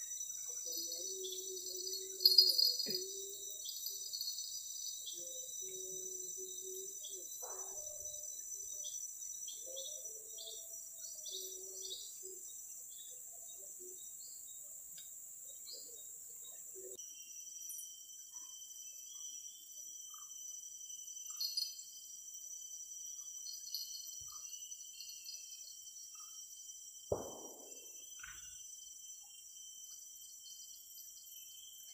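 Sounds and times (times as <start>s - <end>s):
bird chirps: 0.0s - 17.0s, 27.1s - 28.6s
insects droning: 0.0s - 31.9s.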